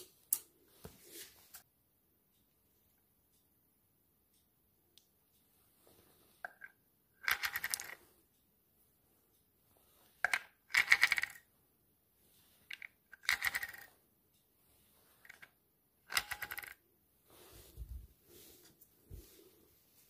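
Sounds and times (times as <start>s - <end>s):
batteries clicking and scraping: 6.4s - 8.1s, 10.0s - 11.4s, 12.6s - 14.0s, 15.1s - 16.8s.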